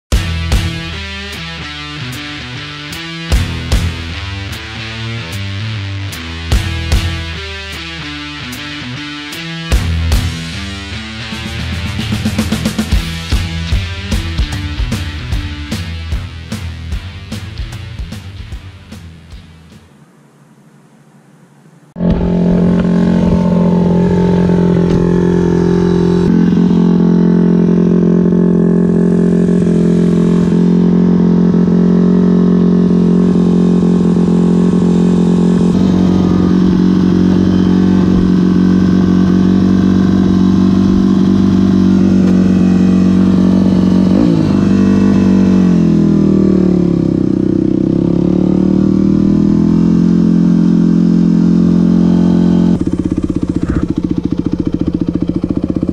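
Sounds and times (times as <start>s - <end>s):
dirt bike engine idling: 22.0s - 55.9s.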